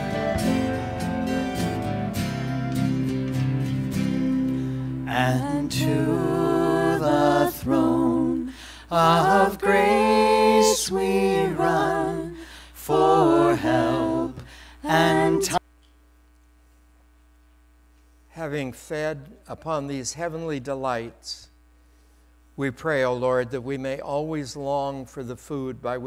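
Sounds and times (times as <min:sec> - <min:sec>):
person singing a hymn: 0:00.0 - 0:01.4, 0:05.1 - 0:15.6
faint electrical hum: 0:00.0 - 0:26.0.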